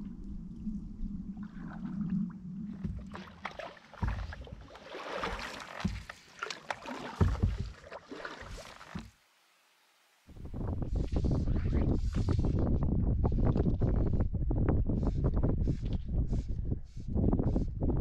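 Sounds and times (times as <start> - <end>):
paddle splashing in water: 1.4 - 9.2
paddle knocking on canoe hull: 2.7 - 9.2.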